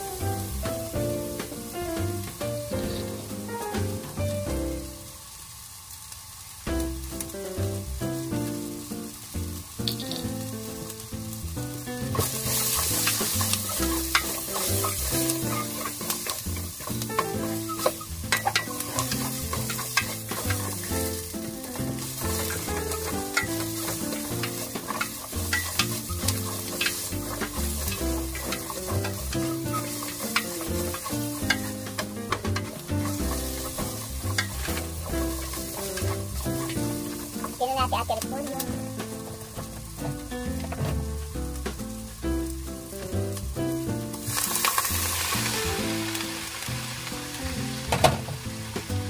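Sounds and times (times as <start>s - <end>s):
background music: 0.0s - 5.1s, 6.7s - 49.0s
food sizzling in a frying pan: 0.0s - 49.0s
spatula scraping and clicking on pan: 12.2s - 37.6s.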